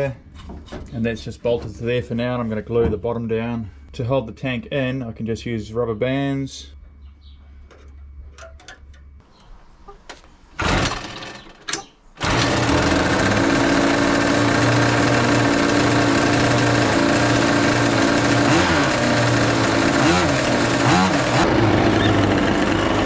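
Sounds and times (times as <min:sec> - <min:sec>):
small two-stroke engines running: 0:10.6 - 0:11.6, 0:12.2 - 0:23.0.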